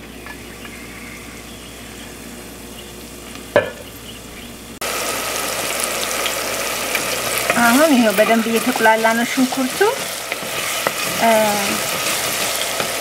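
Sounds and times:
onions sizzling in oil: 4.7s - 13.0s.

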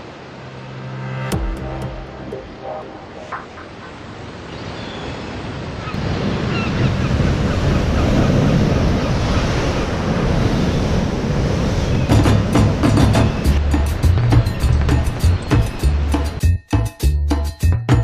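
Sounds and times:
surf crashing against pilings: 5.2s - 15.7s.

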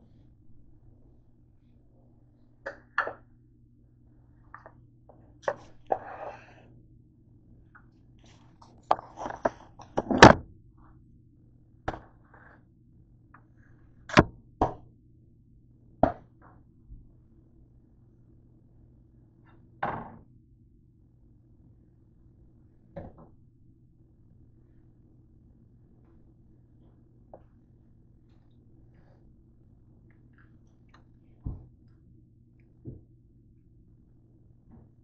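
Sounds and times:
faint low hum: 0.0s - 35.0s
things set down on kitchen counter: 2.7s - 3.2s, 19.8s - 20.2s.

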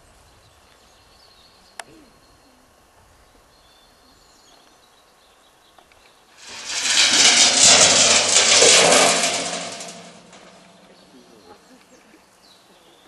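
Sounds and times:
loud rattling noise: 6.4s - 11.1s.

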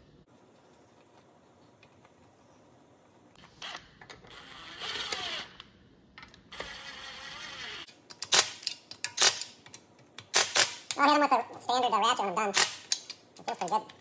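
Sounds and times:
cordless driver whirring: 3.6s - 5.6s, 6.5s - 7.9s.

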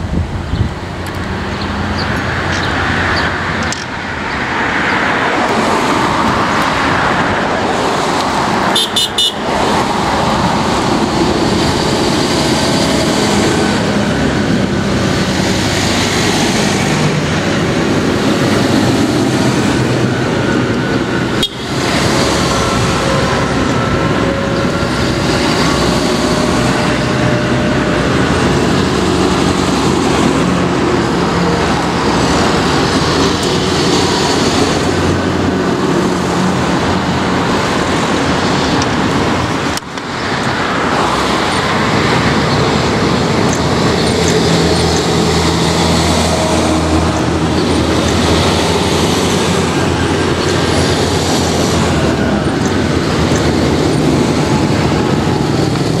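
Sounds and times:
big tyres on tarmac: 0.0s - 56.0s
cars passing: 0.0s - 56.0s
tractor diesel engines passing: 0.0s - 56.0s.

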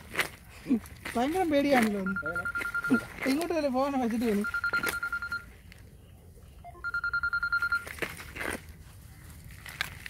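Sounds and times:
phone ringing: 1.8s - 3.5s, 4.3s - 5.5s, 6.6s - 8.0s.

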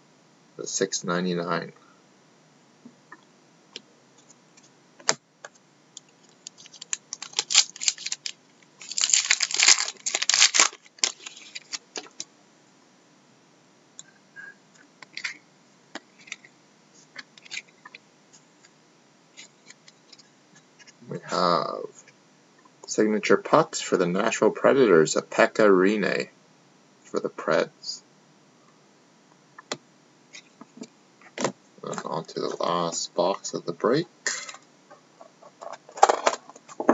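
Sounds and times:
cards being shuffled: 6.2s - 12.2s.

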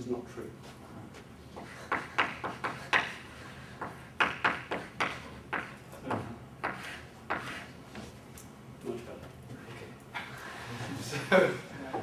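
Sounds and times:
chalk tapping and scratching: 1.5s - 8.2s.

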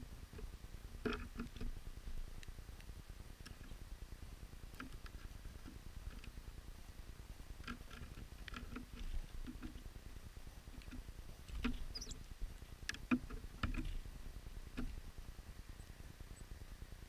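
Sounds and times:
birds pecking and hopping on wood: 0.0s - 16.5s
high bird chip: 11.8s - 12.2s.

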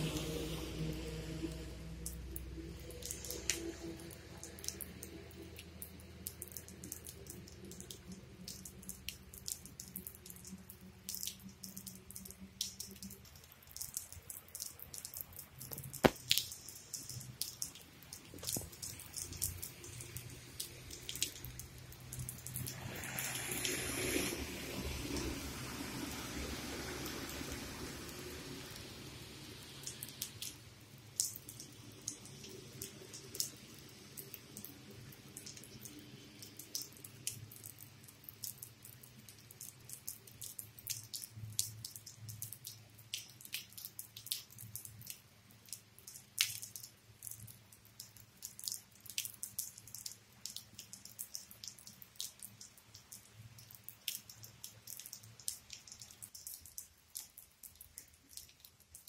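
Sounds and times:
truck passing on wet road: 0.0s - 9.1s, 15.9s - 37.1s
rainwater dripping: 0.0s - 59.0s.

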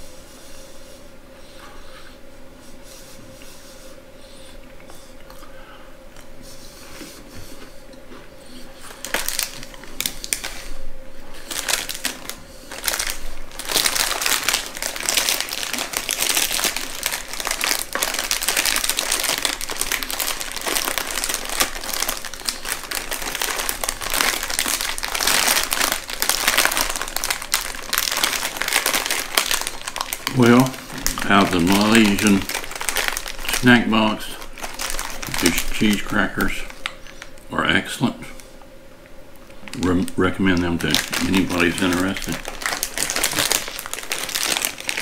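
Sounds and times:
plastic wrapper crinkling: 8.9s - 10.8s, 11.4s - 37.5s, 39.4s - 45.0s.

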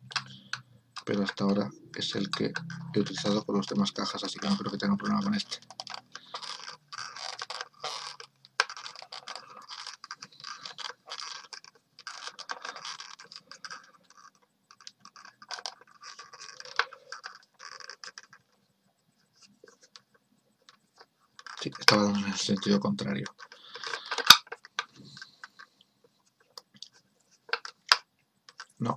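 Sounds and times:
model car rubbing in hands: 0.2s - 18.4s
screwdriver scraping and clicking: 23.3s - 25.6s.

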